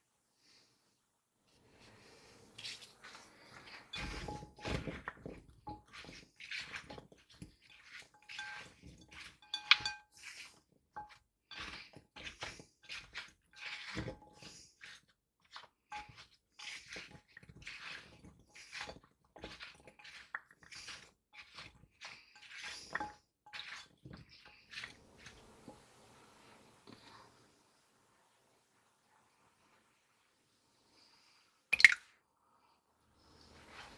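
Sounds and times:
spatula scraping wet fruit: 0:01.7 - 0:27.3, 0:33.3 - 0:33.9.

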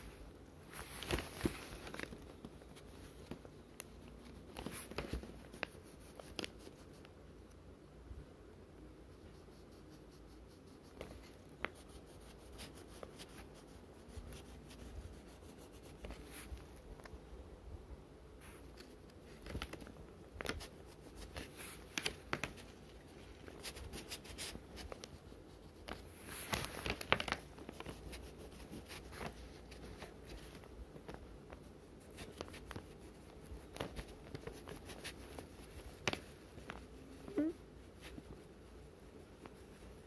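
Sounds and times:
paper rustling: 0:00.0 - 0:07.1, 0:18.4 - 0:37.4.

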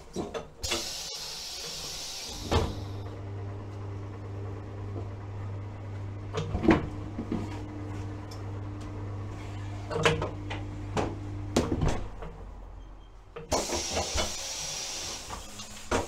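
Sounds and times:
compressed air hissing: 0:00.6 - 0:03.0, 0:13.5 - 0:15.8
tyre-changing machine humming: 0:00.6 - 0:11.6.

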